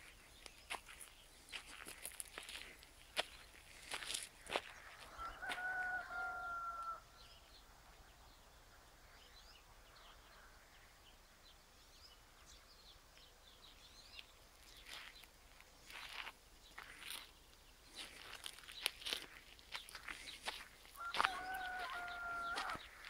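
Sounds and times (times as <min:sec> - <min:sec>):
rooster crowing: 0:04.8 - 0:07.1, 0:20.9 - 0:23.0.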